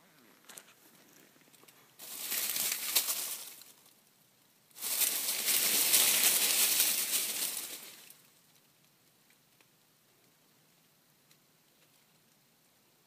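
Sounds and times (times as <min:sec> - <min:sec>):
dry leaves and twigs rustling: 0:00.4 - 0:04.1, 0:04.7 - 0:08.6.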